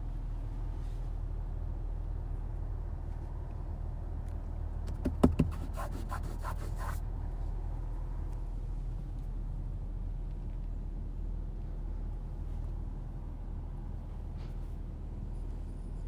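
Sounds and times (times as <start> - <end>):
car low hum: 0.0 - 16.0
sharp knocks: 4.8 - 5.6.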